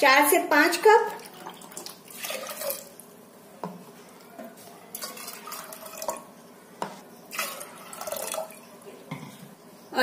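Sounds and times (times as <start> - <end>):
water pouring into pot: 1.2 - 3.1, 4.9 - 6.3, 7.3 - 8.6.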